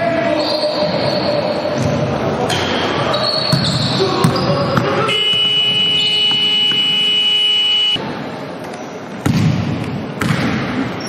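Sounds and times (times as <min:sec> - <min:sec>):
scoreboard horn: 0:05.1 - 0:08.0.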